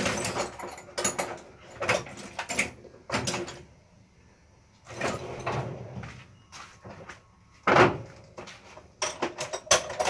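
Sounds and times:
tools scraping and sliding on bench: 4.9 - 6.8.

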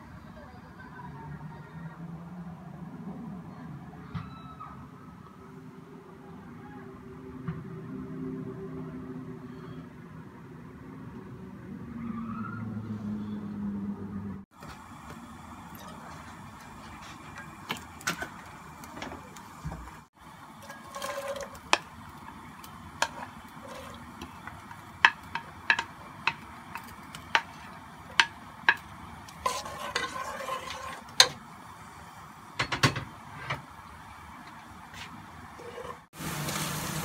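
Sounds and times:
onions sizzling in hot oil: 14.6 - 32.5, 35.5 - 37.0
spatula tapping against pot: 24.2 - 28.9.

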